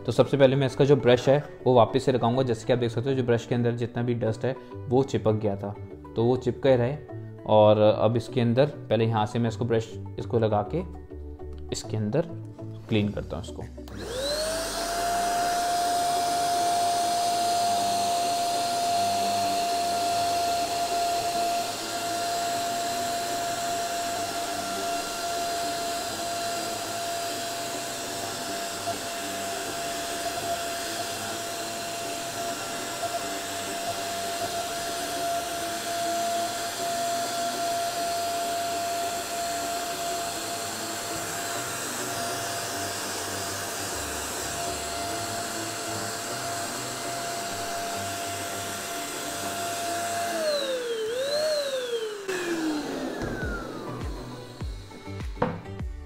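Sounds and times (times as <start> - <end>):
handheld vacuum cleaner motor whine: 13.9 - 55.6.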